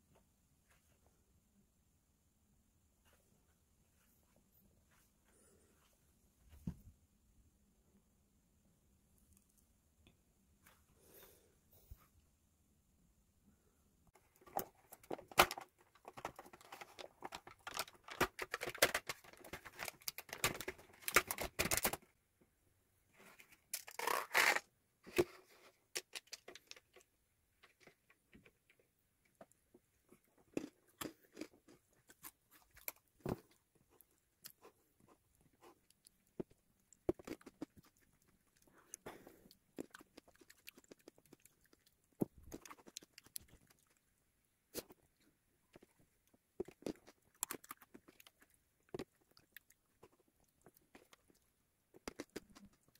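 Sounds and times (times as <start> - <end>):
rustling and tearing: 23.2 - 27.0.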